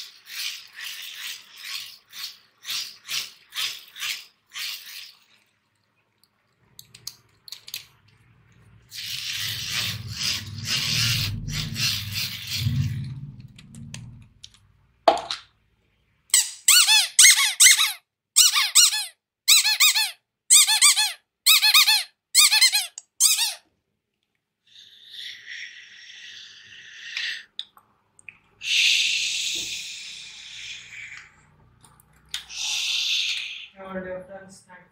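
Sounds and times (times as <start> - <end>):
rattling noise: 9.3 - 14.4
rubber squeaky toy squeaks: 16.3 - 23.7.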